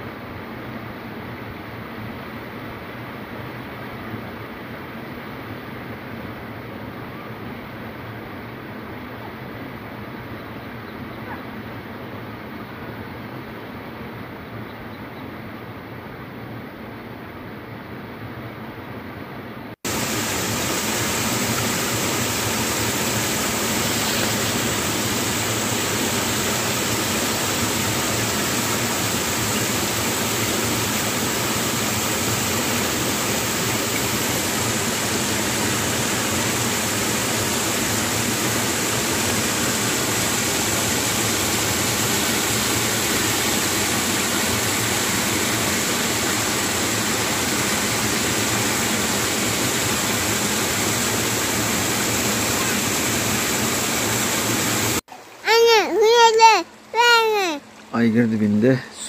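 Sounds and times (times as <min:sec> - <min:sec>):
waterfall rushing onto rocks: 0:19.8 - 0:57.2.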